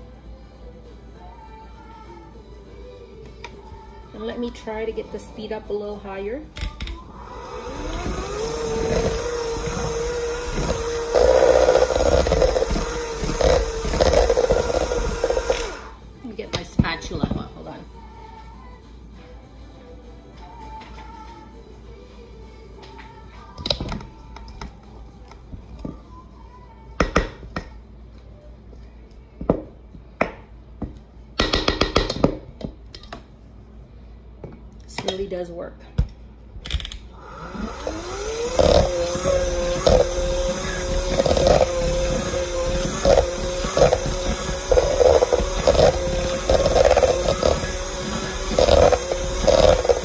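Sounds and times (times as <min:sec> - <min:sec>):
hand mixer motor whirring: 0:07.1 - 0:16.0, 0:37.2 - 0:50.0.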